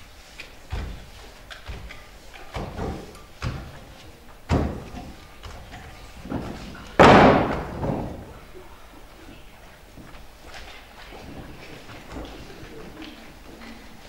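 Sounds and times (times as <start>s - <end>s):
knocks and thumps on wooden stage: 0.6s - 8.6s
loud slam: 7.0s - 8.4s.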